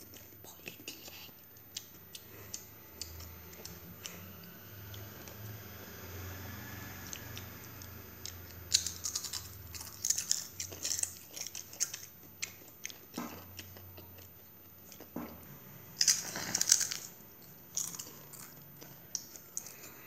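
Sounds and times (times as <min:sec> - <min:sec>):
child crunching tortilla chips: 0:08.3 - 0:13.0, 0:16.0 - 0:20.0.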